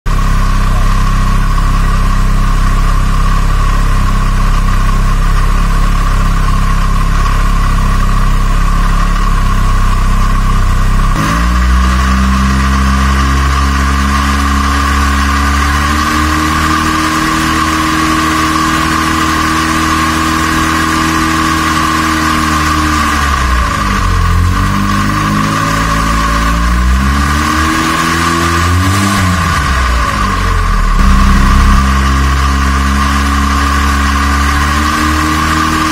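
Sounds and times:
gasoline engine running: 0:00.1 - 0:21.8, 0:28.5 - 0:35.9
steady high whine: 0:29.3 - 0:34.3.

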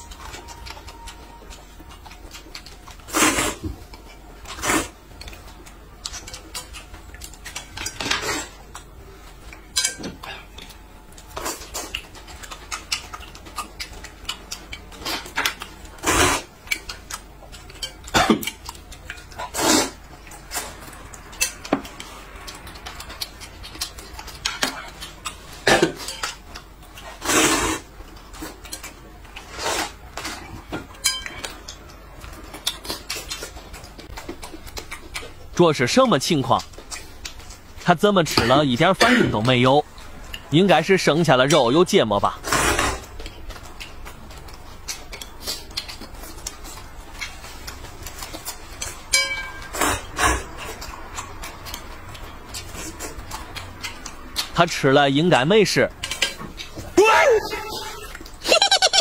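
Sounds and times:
chopsticks clicking against bowls: 0:00.0 - 0:03.0, 0:03.9 - 0:16.0, 0:16.6 - 0:19.5, 0:20.2 - 0:27.1, 0:28.1 - 0:29.5, 0:43.1 - 0:49.8, 0:55.9 - 0:56.8
noodles slurped: 0:19.5 - 0:20.0, 0:27.2 - 0:27.9.

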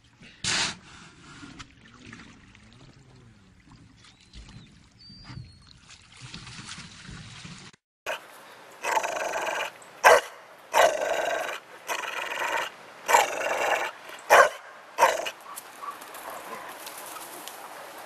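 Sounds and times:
dog grumbling calls: 0:08.8 - 0:16.8.

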